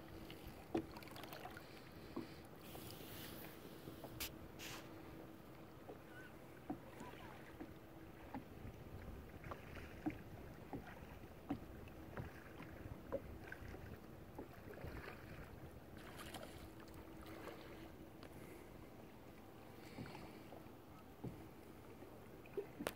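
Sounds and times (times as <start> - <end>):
faint water splashes: 0.0 - 22.9
small knocks against hull: 6.6 - 17.5, 21.2 - 22.9.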